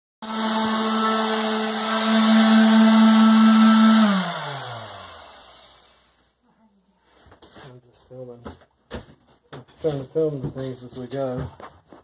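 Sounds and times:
motor spinning down: 0:00.2 - 0:06.2
orbital sander running: 0:00.2 - 0:06.2.

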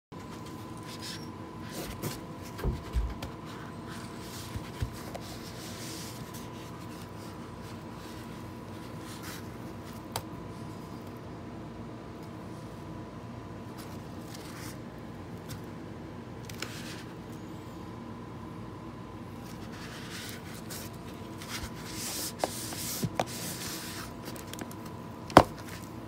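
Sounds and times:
cardboard rubbing against hands: 0:00.3 - 0:10.1, 0:19.3 - 0:24.8.

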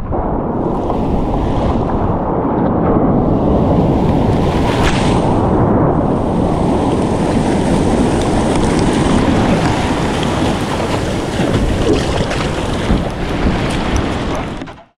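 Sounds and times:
wind rumbling on microphone: 0:00.0 - 0:14.9
whitewater rushing and splashing: 0:00.6 - 0:02.2, 0:03.0 - 0:14.8.

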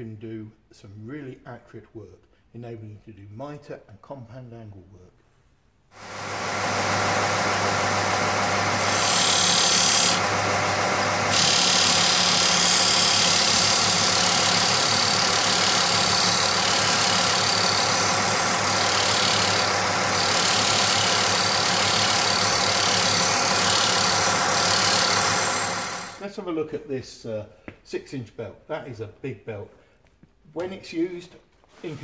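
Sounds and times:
sander motor humming: 0:06.0 - 0:26.2
wooden block being sanded: 0:06.1 - 0:26.2.

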